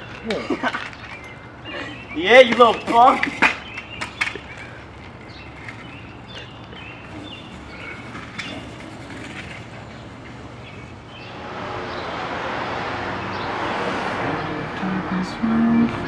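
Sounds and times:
small birds chirping: 0.0 - 12.1
passing traffic rushing: 0.0 - 16.0.

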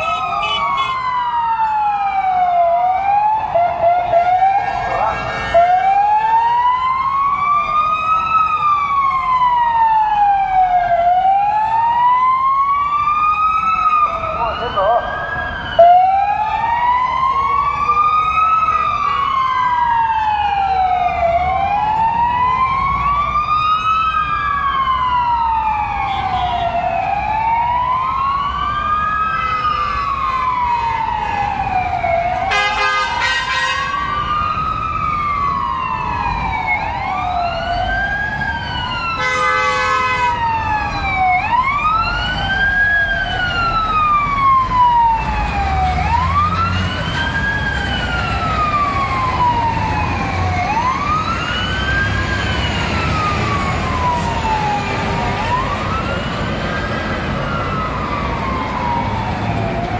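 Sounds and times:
fire truck sirens wailing: 0.0 - 59.9
street traffic rumble: 0.0 - 59.9
horn blasts: 32.5 - 33.9, 39.2 - 40.3.

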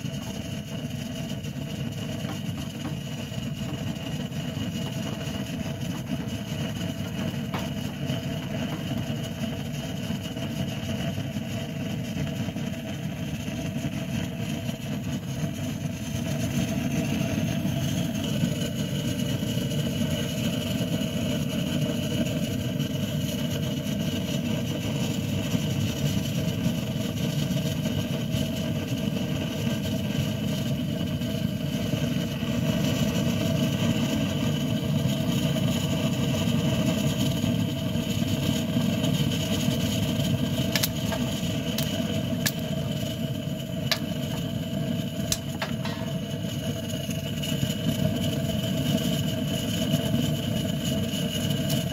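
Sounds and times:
gas blowtorch roaring: 0.0 - 51.9.

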